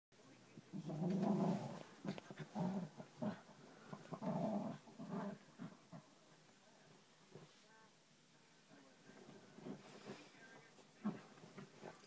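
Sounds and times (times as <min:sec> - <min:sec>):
dog growling: 0:00.7 - 0:06.2.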